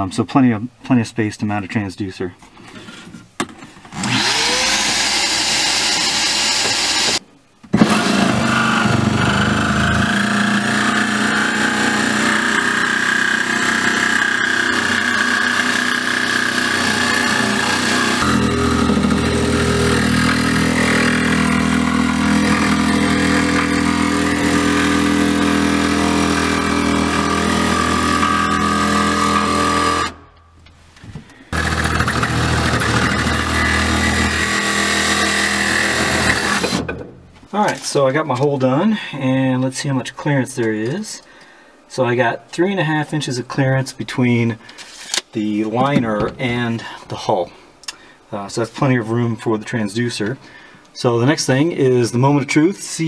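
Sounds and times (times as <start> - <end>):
jigsaw cutting fiberglass: 4.0 - 7.2, 7.8 - 30.2, 31.5 - 36.8.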